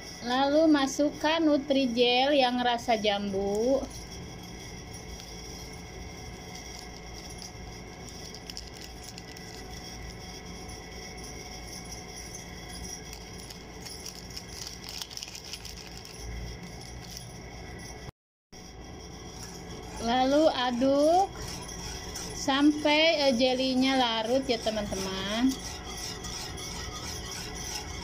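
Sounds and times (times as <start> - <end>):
plastic packet crinkling: 8.3 - 9.6, 13.8 - 16.1.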